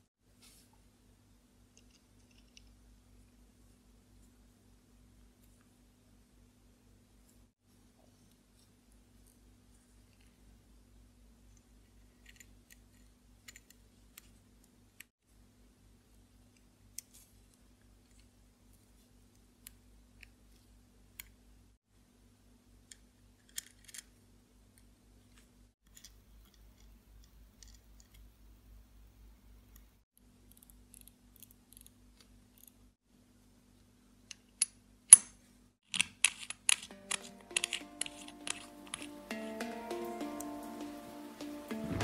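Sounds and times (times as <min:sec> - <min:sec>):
small metallic clicks and taps: 0:34.3 - 0:39.7.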